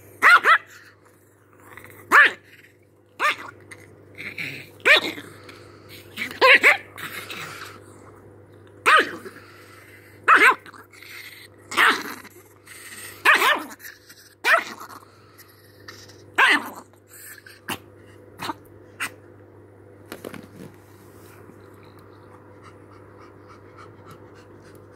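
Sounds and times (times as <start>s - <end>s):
steady low hum: 0.0s - 24.9s
small dog barking: 0.2s - 0.9s, 2.1s - 2.5s, 3.2s - 3.6s, 4.8s - 5.2s, 6.2s - 7.0s, 8.8s - 9.3s, 10.3s - 10.7s, 11.7s - 12.1s, 13.2s - 13.8s, 14.4s - 14.8s, 16.4s - 16.8s.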